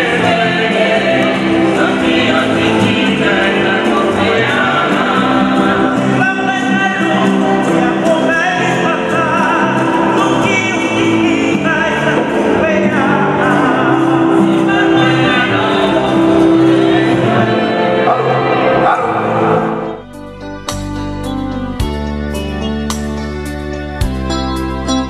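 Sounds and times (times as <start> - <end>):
choir singing a hymn: 0.0 - 20.0.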